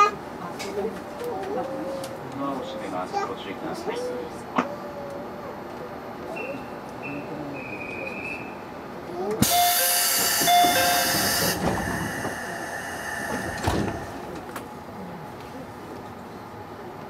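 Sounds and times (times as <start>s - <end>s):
short tones: 9.4s - 14.2s
compressed air hissing: 9.4s - 14.4s.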